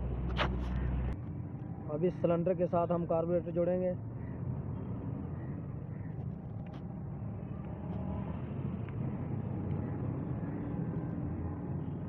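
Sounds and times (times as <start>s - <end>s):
low mechanical rumble: 0.0s - 2.4s.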